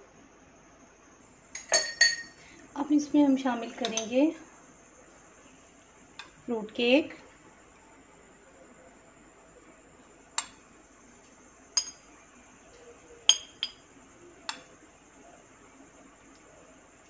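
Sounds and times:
metal spoon clinking against glass: 0:01.6 - 0:02.4, 0:13.3 - 0:13.8.

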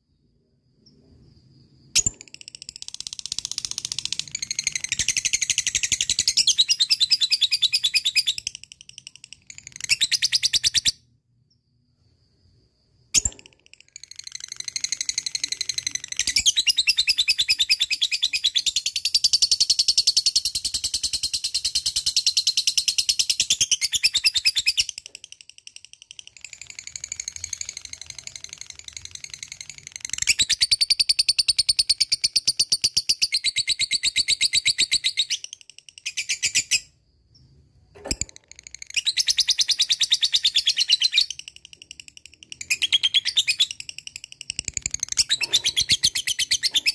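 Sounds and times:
sharp click: 0:13.2 - 0:13.9, 0:37.9 - 0:38.8
bird chattering trills: 0:40.3 - 0:46.9.

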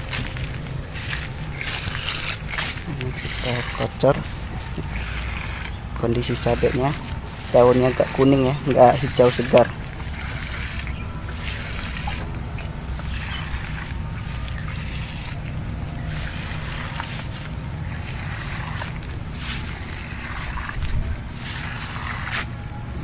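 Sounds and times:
steady low rumble: 0:00.0 - 0:23.0
liquid pouring and splashing: 0:04.7 - 0:22.4.

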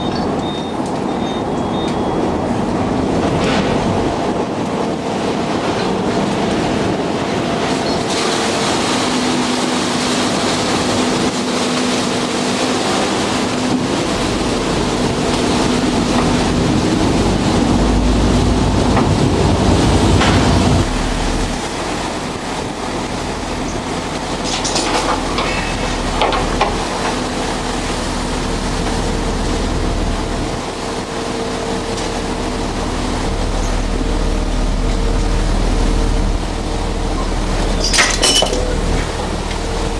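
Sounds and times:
ship engine drone: 0:00.0 - 0:39.9
machinery rattle: 0:37.2 - 0:39.6.

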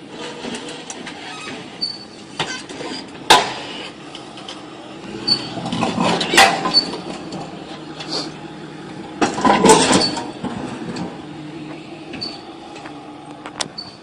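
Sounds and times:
sharp knocks and clanks: 0:02.4 - 0:04.6.

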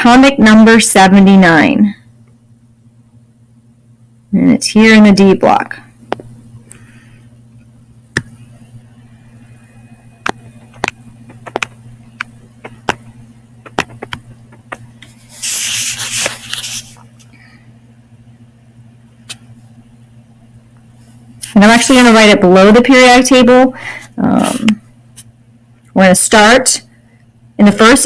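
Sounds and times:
steady low hum: 0:00.0 - 0:28.0
stylus clicking on tablet screen: 0:10.2 - 0:14.8.

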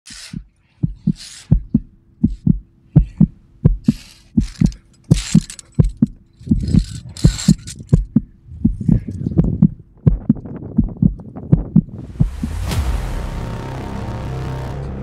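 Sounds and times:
breathy hiss: 0:00.1 - 0:03.3
heartbeat thumps: 0:00.2 - 0:12.8.

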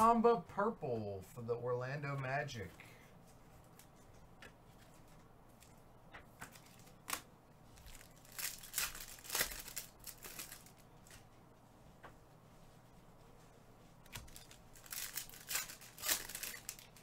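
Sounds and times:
card pack wrappers crinkling: 0:06.4 - 0:11.2, 0:14.1 - 0:17.0.

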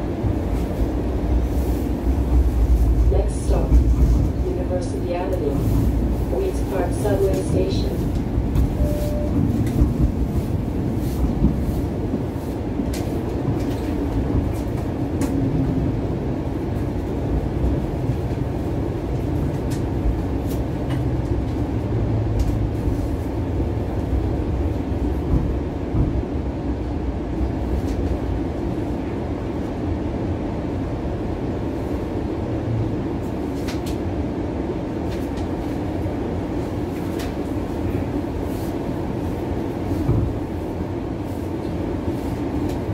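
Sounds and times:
streetcar wheels rumbling: 0:00.0 - 0:42.9.

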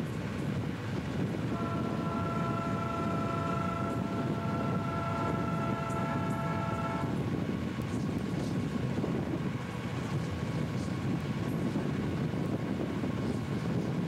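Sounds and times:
locomotive rumbling: 0:00.4 - 0:09.3
locomotive air horn: 0:01.5 - 0:07.2.

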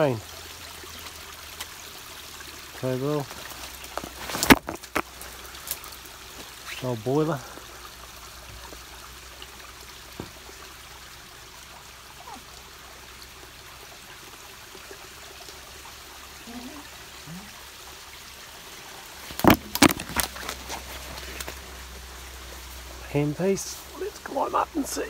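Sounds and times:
flowing river: 0:00.0 - 0:25.0
sharp cracks and knocks: 0:03.9 - 0:05.8, 0:19.3 - 0:21.6.

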